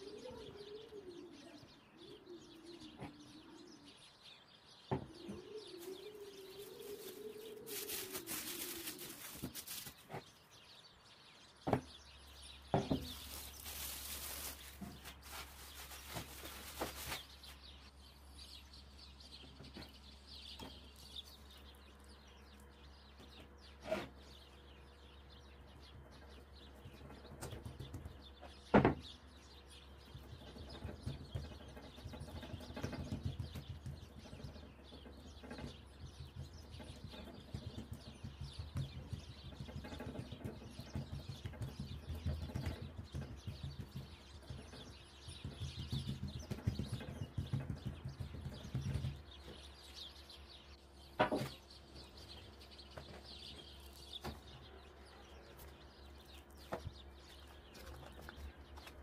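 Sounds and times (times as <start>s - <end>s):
hands patting dough: 6.5s - 10.2s, 36.2s - 44.6s.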